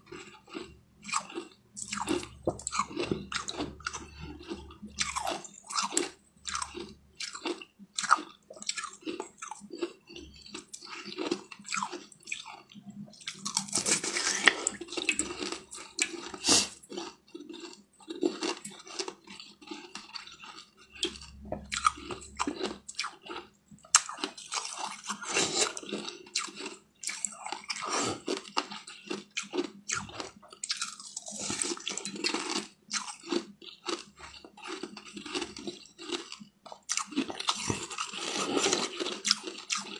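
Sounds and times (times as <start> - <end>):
chewing: 0.1 - 39.9
ice crunching in mouth: 13.3 - 39.9.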